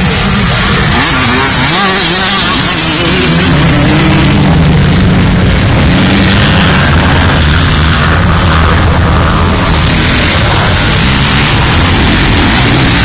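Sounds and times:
dirt bike engines revving: 0.0 - 13.0.

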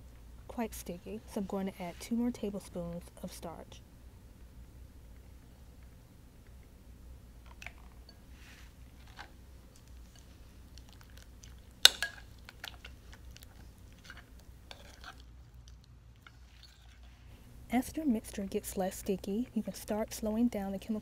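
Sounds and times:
slime squelching: 8.9 - 17.3.

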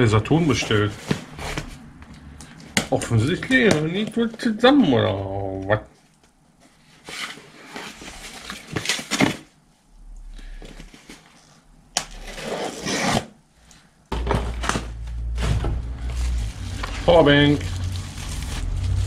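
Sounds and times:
steady low hum: 9.6 - 12.4
cardboard and tape tearing: 12.0 - 13.4, 16.0 - 19.0.

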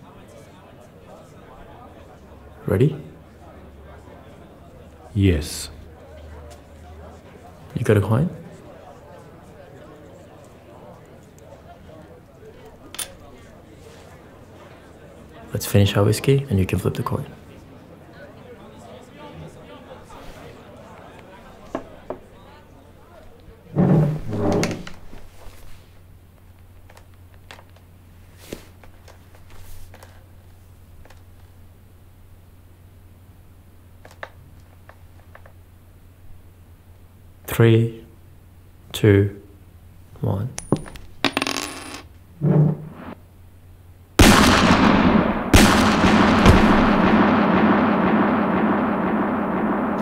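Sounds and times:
soft rustle: 25.0 - 26.1, 28.1 - 30.8
coin ringing on wooden table: 40.6 - 42.1
steady low hum: 42.1 - 50.0
handgun shots: 44.2 - 50.0.

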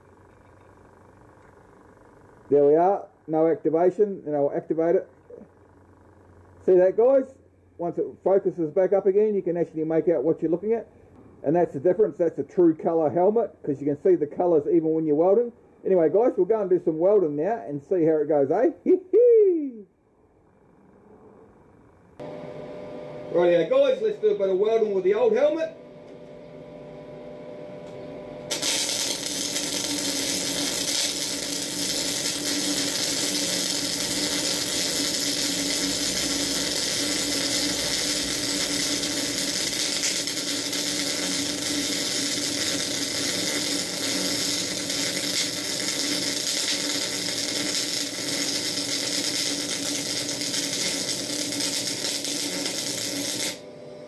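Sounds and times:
welding arc crackling hiss: 28.5 - 53.6.

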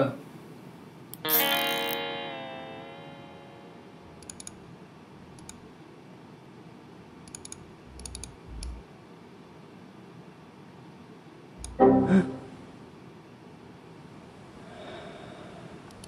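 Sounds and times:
faint room hiss: 0.0 - 16.0
computer keyboard clicks: 4.2 - 4.6, 7.3 - 8.8.

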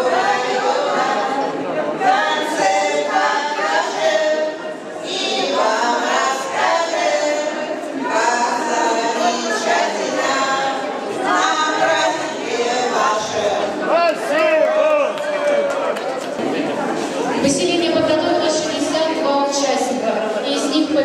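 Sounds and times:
women singing unaccompanied: 0.0 - 13.8.

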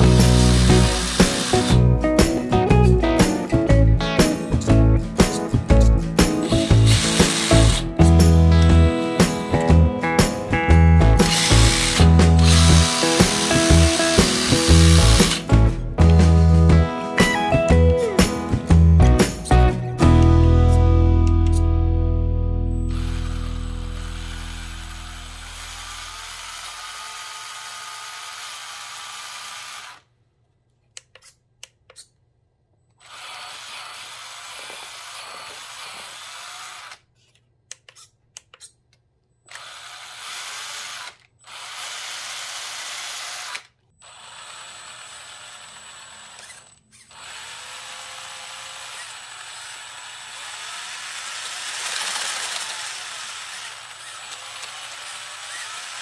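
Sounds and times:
electric motor whirring: 0.0 - 1.9, 5.8 - 9.7, 11.1 - 15.6, 22.9 - 30.0, 39.5 - 56.0.

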